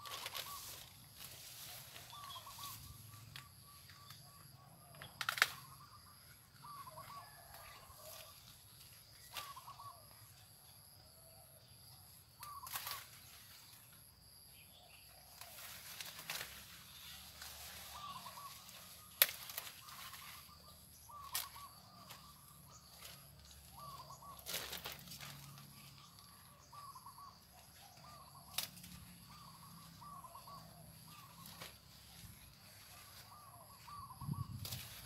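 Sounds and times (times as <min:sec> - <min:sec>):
birds chirping: 0:01.9 - 0:08.1, 0:16.8 - 0:34.7
rustling: 0:22.9 - 0:26.3.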